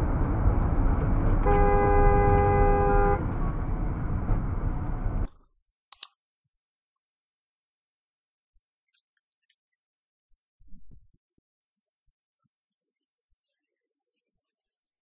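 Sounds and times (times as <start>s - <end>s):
road noise from moving car: 0.0s - 5.3s
car horn: 1.4s - 3.4s
short sharp clicks: 5.9s - 6.1s.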